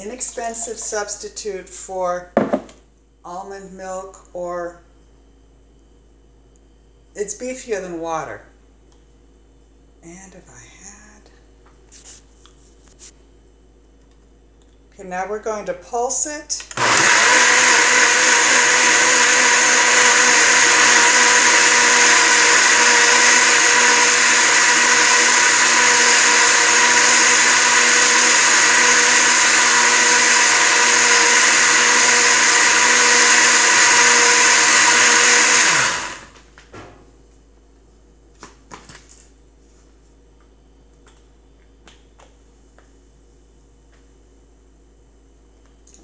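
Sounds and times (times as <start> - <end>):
blender running: 16.6 - 36.4.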